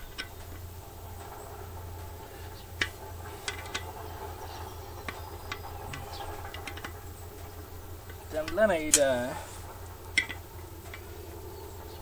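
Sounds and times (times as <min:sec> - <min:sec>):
faint low hum: 0:00.0 - 0:12.0
spanner clicking on bolts: 0:02.8 - 0:04.0, 0:05.0 - 0:07.0.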